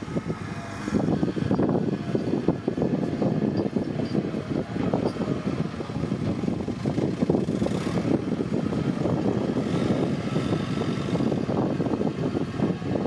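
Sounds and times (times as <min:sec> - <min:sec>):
tractor diesel engine chugging: 0:00.0 - 0:12.8.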